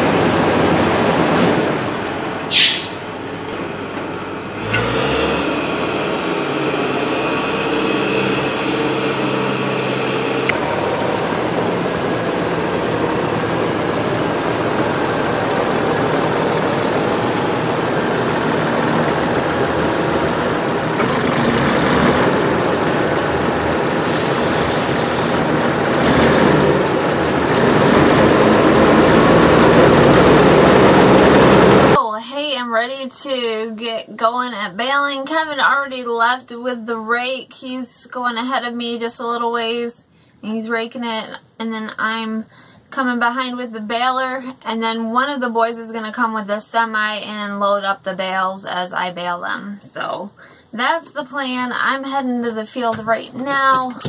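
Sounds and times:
diesel tractor engine running: 0.0s - 32.0s
air hissing: 2.5s - 3.2s, 24.0s - 25.4s.

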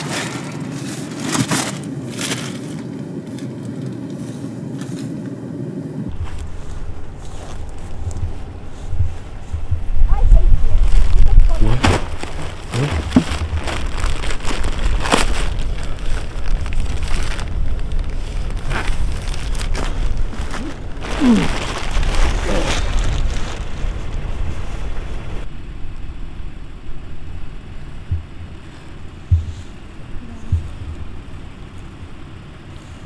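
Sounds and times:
plastic bag and tape crinkling: 0.0s - 5.2s, 6.1s - 25.4s
low car engine rumble: 0.0s - 33.0s.

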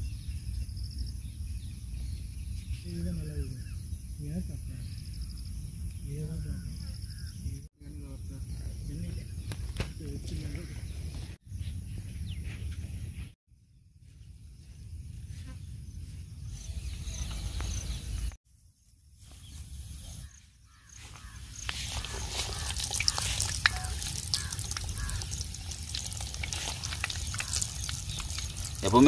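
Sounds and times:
food deep-frying in oil: 21.0s - 29.0s.

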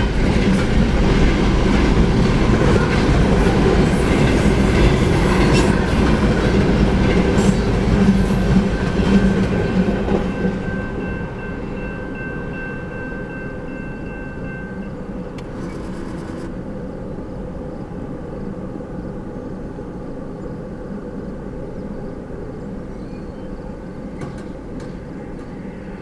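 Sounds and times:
freight train rumble: 0.0s - 26.0s
railroad crossing bell ringing: 8.4s - 15.4s.

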